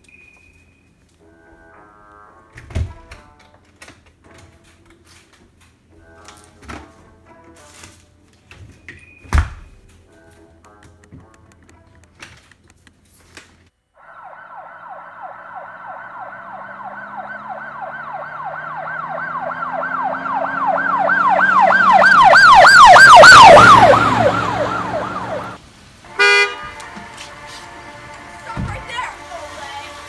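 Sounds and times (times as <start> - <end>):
police siren yelping: 14.0 - 25.6.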